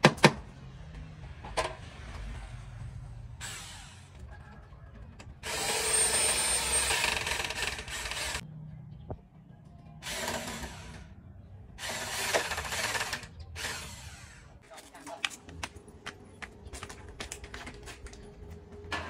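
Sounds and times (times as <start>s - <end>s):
power tool running: 5.4s - 8.4s.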